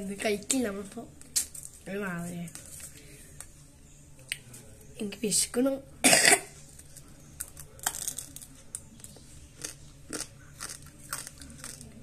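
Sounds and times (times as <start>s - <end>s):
dry noodles crunching: 6.8s - 12.0s.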